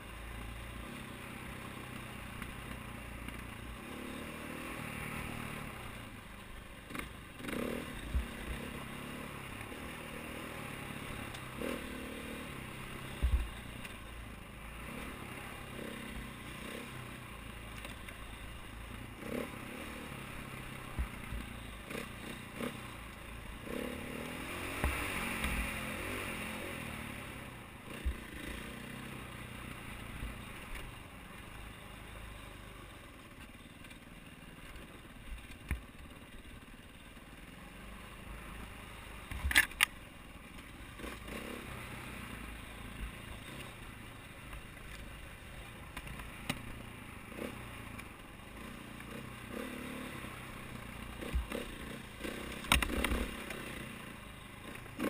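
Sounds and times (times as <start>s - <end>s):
dirt bike engine revving: 6.9s - 13.4s, 14.7s - 17.2s, 18.9s - 30.2s, 41.0s - 43.8s, 47.2s - 55.0s.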